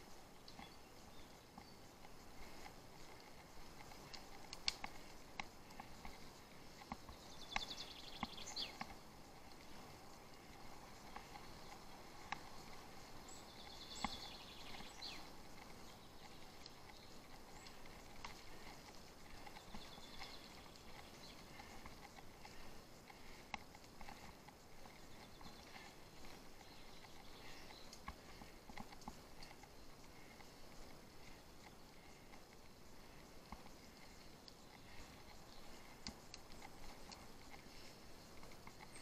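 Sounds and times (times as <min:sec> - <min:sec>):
bicycle clicks and knocks: 0:00.3 - 0:39.0
songbird trilling: 0:07.1 - 0:08.8, 0:13.0 - 0:18.1.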